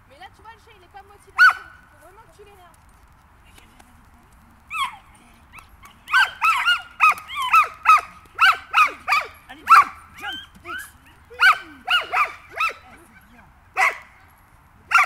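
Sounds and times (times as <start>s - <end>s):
small dog barking: 1.4s - 1.8s, 4.7s - 13.2s, 13.8s - 14.2s.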